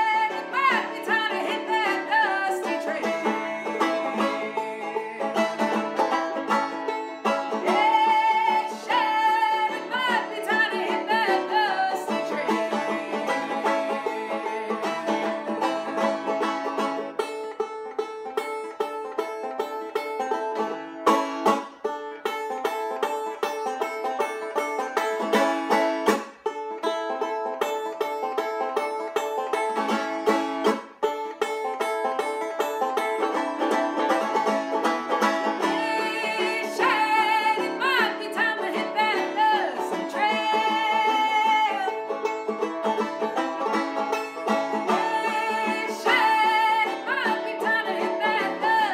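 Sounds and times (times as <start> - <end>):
fast banjo picking: 0.0 - 48.9.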